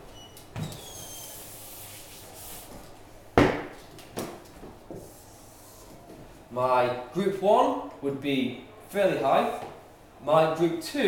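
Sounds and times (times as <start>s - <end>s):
eraser wiping whiteboard: 0.8s - 2.8s
sharp knock: 3.4s - 3.8s.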